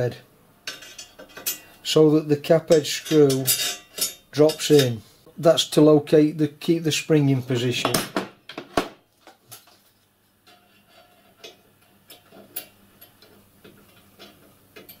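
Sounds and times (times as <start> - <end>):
metal parts clicking and tapping: 0.7 - 1.8, 2.6 - 5.0, 10.4 - 15.0.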